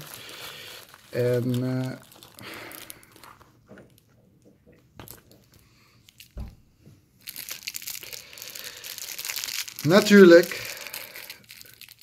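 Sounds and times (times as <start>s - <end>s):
plastic bag crackling: 0.0s - 4.1s, 7.2s - 12.0s
plastic crinkling: 0.0s - 6.6s, 7.2s - 12.0s.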